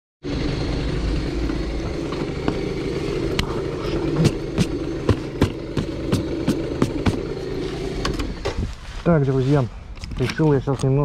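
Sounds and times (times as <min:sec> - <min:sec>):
scooter engine idling: 0:00.2 - 0:08.6.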